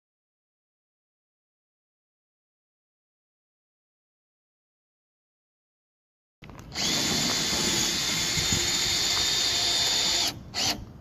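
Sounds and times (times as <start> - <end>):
cordless drill driving screw into metal: 6.7 - 10.9.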